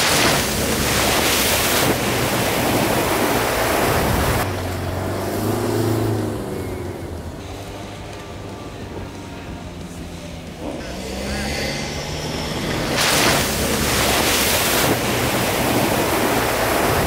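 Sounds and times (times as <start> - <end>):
water splashing: 0.0 - 6.4, 11.9 - 17.0
vehicle engine revving: 0.0 - 17.0.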